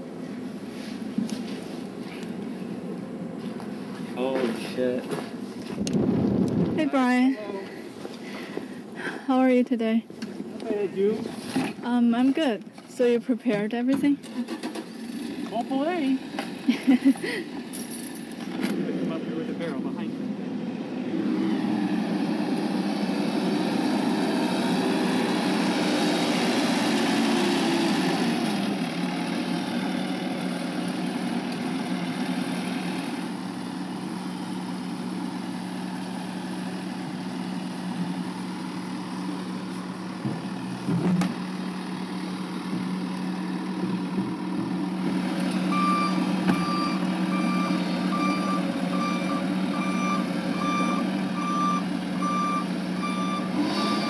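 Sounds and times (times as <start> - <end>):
utility vehicle engine running: 13.4 - 54.0
reversing alarm beeping: 45.7 - 54.0.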